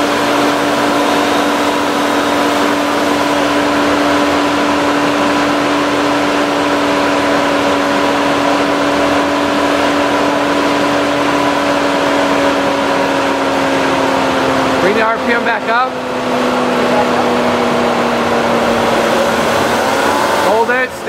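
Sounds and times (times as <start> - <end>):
car engine hum: 0.0 - 21.0.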